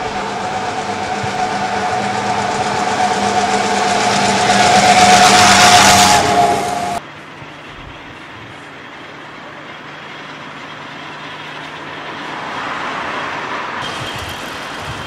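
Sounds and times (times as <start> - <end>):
old car engine whine passing: 0.0 - 7.3.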